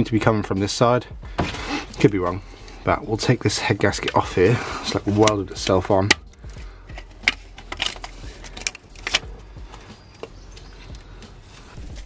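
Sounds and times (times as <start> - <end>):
gasket clicks and scrapes: 3.6 - 11.0.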